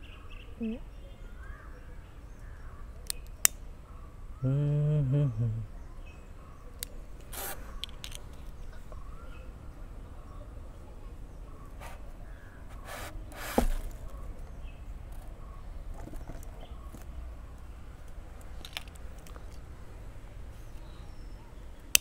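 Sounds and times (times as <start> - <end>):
scrape with a squeak on styrofoam: 7.3 - 7.7, 12.7 - 13.8.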